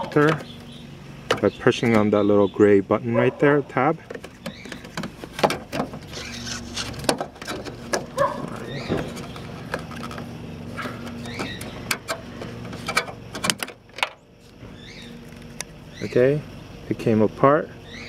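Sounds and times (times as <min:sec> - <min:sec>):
handling rubs: 0:04.0 - 0:13.0.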